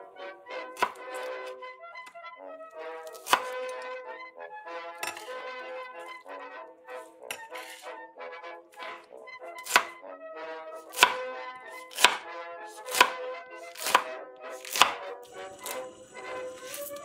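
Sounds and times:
background music: 0.0 - 17.0
knife chopping on marble board: 0.8 - 1.3, 3.0 - 3.6, 5.0 - 5.4, 7.2 - 7.9, 9.6 - 9.9, 10.9 - 11.2, 11.8 - 12.2, 12.8 - 17.0.

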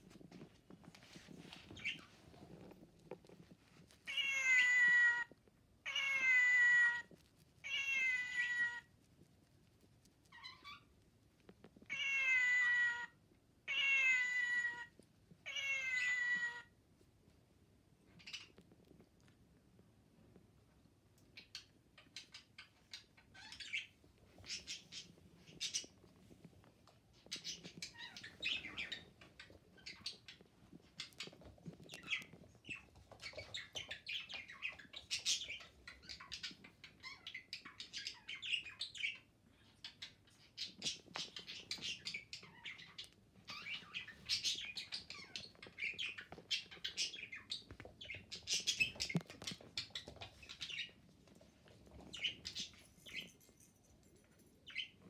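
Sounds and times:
puppy scuffling with plush toys: 0.0 - 5.4, 24.0 - 36.7, 43.3 - 55.0.

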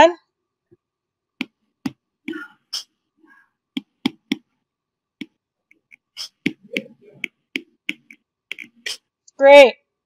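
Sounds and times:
stylus tapping on tablet screen: 1.4 - 2.5, 3.7 - 4.6, 5.2 - 9.0.

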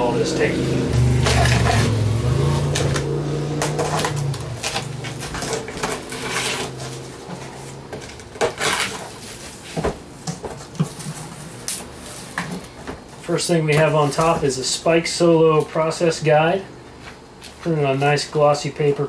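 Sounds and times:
cardboard scraping and rustling: 1.2 - 13.1
knife slicing packing tape: 8.4 - 9.1.

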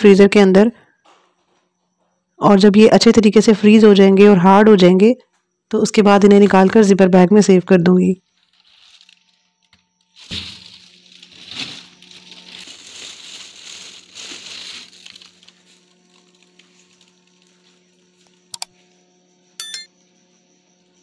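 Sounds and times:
freezer hum: 0.0 - 21.0
plastic bags crumpling: 8.3 - 9.4, 10.2 - 17.5.

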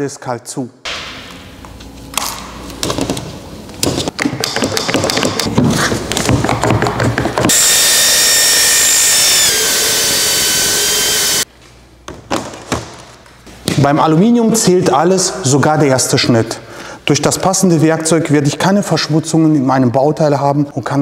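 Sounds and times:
circular saw cutting metal: 7.5 - 11.4.

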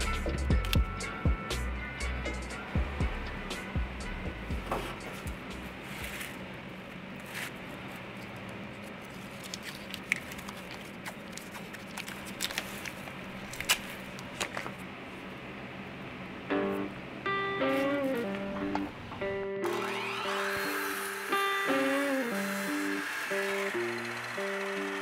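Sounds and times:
steady low hum: 0.0 - 20.2
hands handling hose and tape: 7.1 - 14.8.

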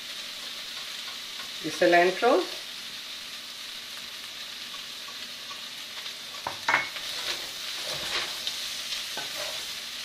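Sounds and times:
vegetables sizzling: 0.0 - 10.0
metal spoon scraping a pan: 4.7 - 9.8.

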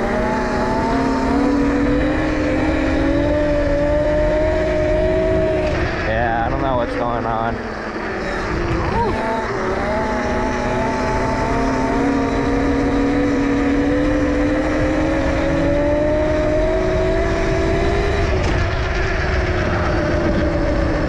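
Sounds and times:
electric motor whining: 0.0 - 21.0
wind and tyre noise: 0.0 - 21.0.

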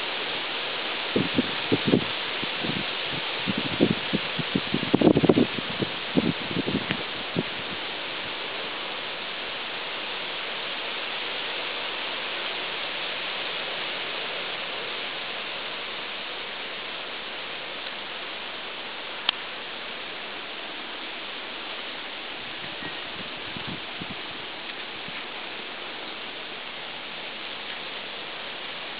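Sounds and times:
steady hiss: 0.0 - 28.9.

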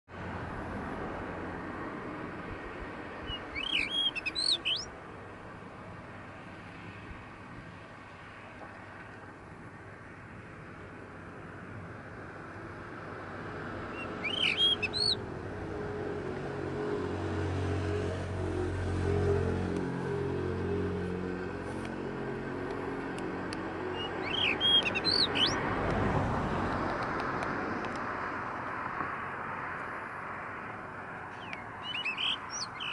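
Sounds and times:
vehicle engine hum passing: 0.1 - 32.9
bird whistling phrases: 3.3 - 4.9, 14.0 - 15.2, 24.0 - 25.6, 31.4 - 32.9.

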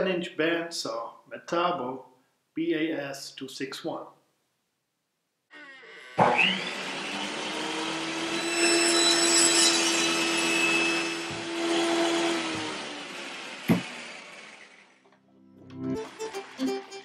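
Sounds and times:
circular saw cutting log: 5.5 - 15.1.

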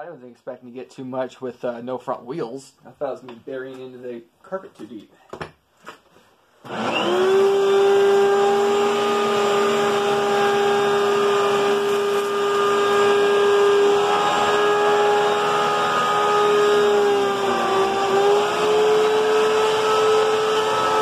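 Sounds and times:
vacuum cleaner motor whine: 6.7 - 21.0.

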